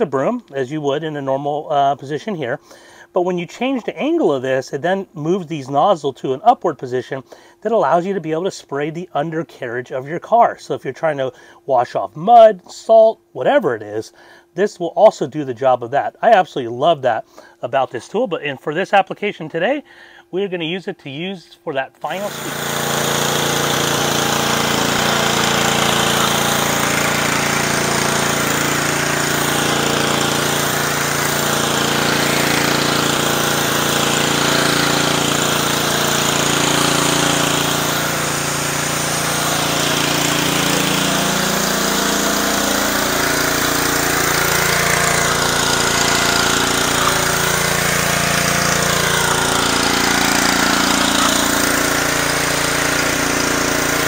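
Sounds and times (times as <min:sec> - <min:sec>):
pressure washer engine running: 0:22.0 - 0:54.0
high-pressure water spraying on concrete: 0:22.1 - 0:54.0.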